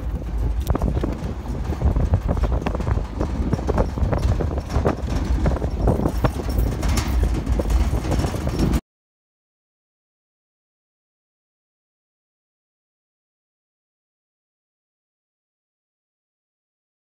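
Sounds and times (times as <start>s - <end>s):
steel tray rattling and knocking: 0.0s - 8.8s
vehicle rumbling on dirt track: 0.0s - 8.8s.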